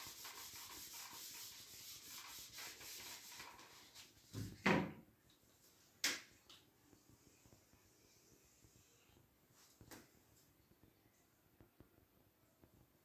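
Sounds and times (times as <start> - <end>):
whiteboard eraser rubbing: 0.0 - 4.3.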